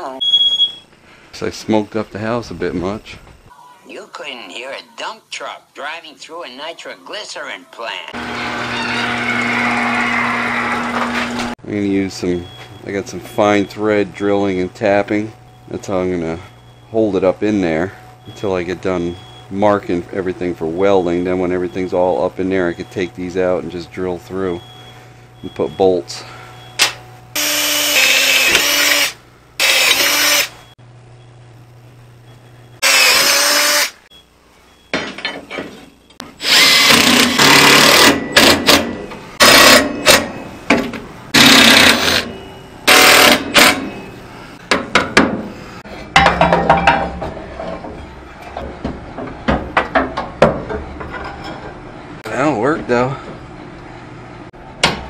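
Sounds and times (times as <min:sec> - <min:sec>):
cordless drill drilling steel: 0:27.4 - 0:30.5, 0:32.8 - 0:34.0, 0:36.4 - 0:38.1, 0:41.4 - 0:42.3, 0:42.9 - 0:43.8.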